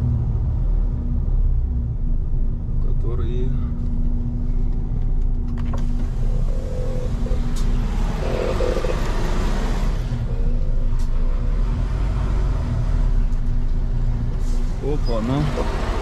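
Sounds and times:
diesel truck engine running: 4.2 - 16.0.

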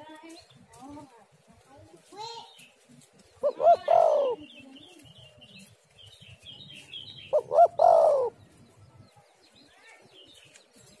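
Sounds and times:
small birds chirping faintly: 0.0 - 11.0
dove cooing: 3.3 - 4.9, 7.2 - 8.6.

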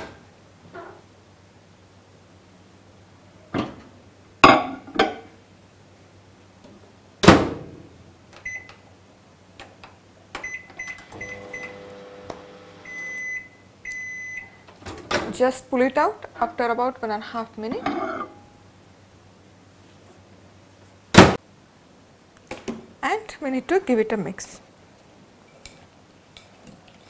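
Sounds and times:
keypad beeps: 8.4 - 8.7, 10.4 - 11.7, 12.9 - 14.6
long end-of-cycle beeps: 10.4 - 11.8, 12.8 - 14.6
microwave oven humming: 10.4 - 14.7.

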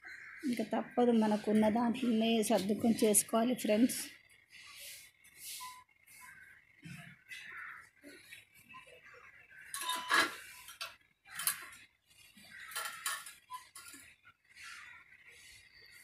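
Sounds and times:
metal utensils and dishes clattering: 9.6 - 11.8, 12.5 - 14.2.

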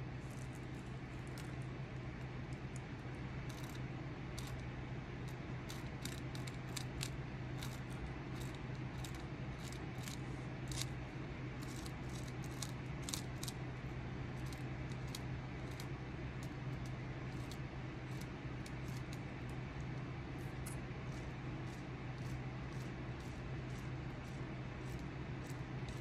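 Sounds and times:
steady low hum: 0.0 - 26.0
carving tool scraping wood: 3.5 - 4.6, 5.3 - 11.0, 11.6 - 13.6, 17.3 - 19.2, 20.4 - 26.0.

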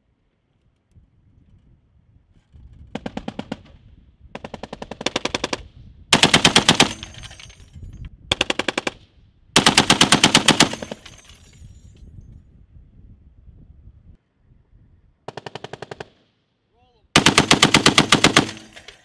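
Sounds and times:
heavy machine gun bursts: 4.4 - 7.5, 9.6 - 11.2, 17.2 - 19.0.

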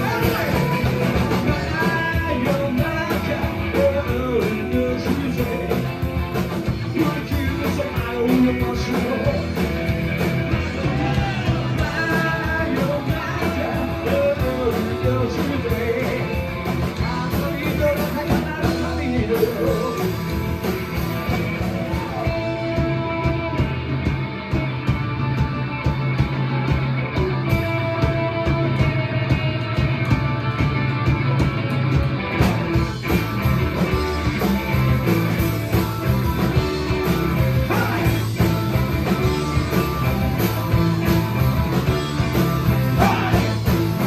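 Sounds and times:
rock and roll band playing: 0.0 - 44.0
person singing: 10.6 - 16.4, 17.0 - 20.2, 37.4 - 38.5, 42.8 - 44.0.

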